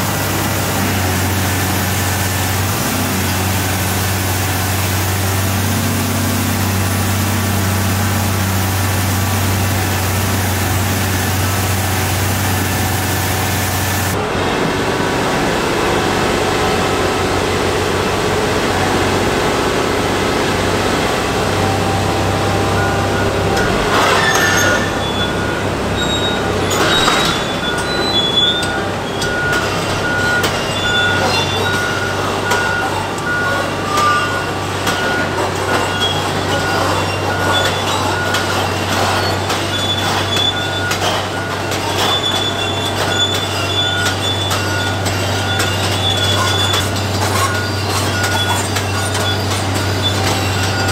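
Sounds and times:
diesel engine drone: 0:00.0 - 0:50.9
track chains squealing: 0:20.9 - 0:50.9
track chains clanking: 0:21.0 - 0:50.9.

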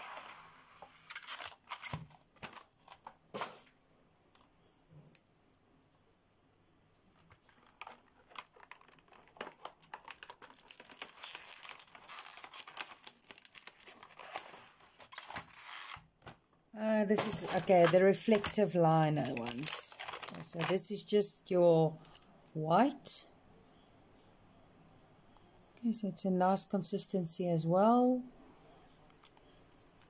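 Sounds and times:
plastic packaging crinkling: 0:01.1 - 0:03.1, 0:07.2 - 0:16.2, 0:17.1 - 0:21.1.

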